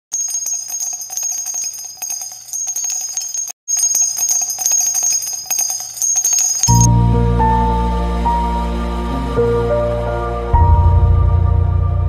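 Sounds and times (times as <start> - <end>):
small bells jingling: 0.1 - 6.9.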